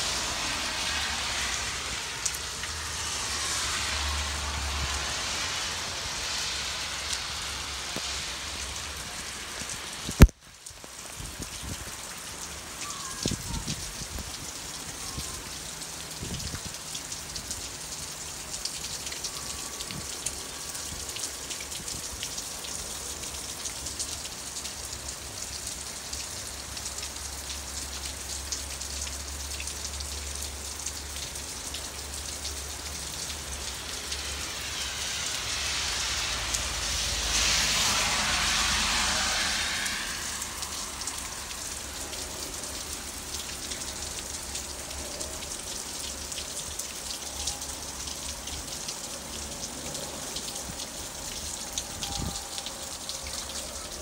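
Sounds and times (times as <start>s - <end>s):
raindrops ticking close by: 0.0s - 54.0s
steady rain falling: 0.0s - 54.0s
loud hiss: 33.7s - 42.0s.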